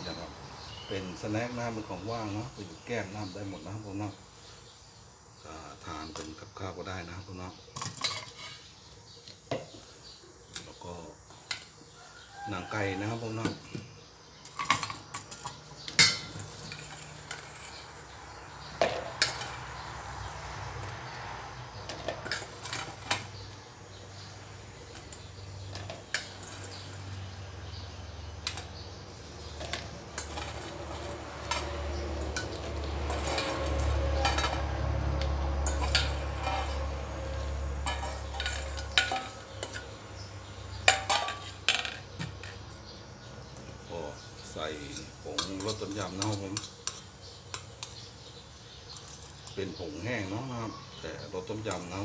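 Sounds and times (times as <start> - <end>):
metal spoon scraping steel bowl: 7.8 - 8.7, 14.4 - 18.2, 29.6 - 42.6, 44.8 - 48.1.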